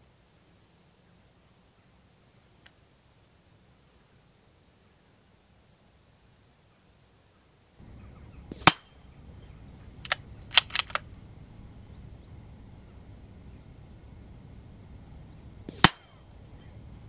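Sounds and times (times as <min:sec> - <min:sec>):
rifle shot hitting steel plate: 0:08.5 - 0:09.0, 0:15.7 - 0:16.2
metallic clinks of swinging plate: 0:08.5 - 0:09.6, 0:15.7 - 0:17.0.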